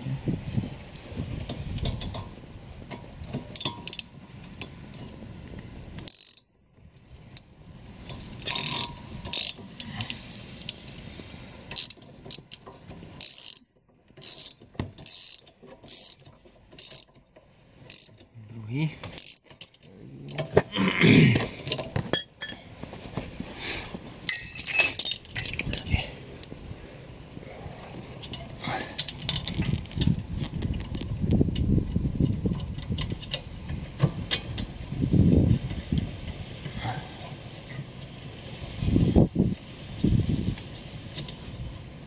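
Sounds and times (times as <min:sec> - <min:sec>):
scraping and handling noise: 0:00.4 - 0:31.6
socket ratchet wrench clicking: 0:06.1 - 0:06.4, 0:08.4 - 0:10.8, 0:13.2 - 0:13.6, 0:14.2 - 0:17.1, 0:17.9 - 0:18.2, 0:19.1 - 0:19.6.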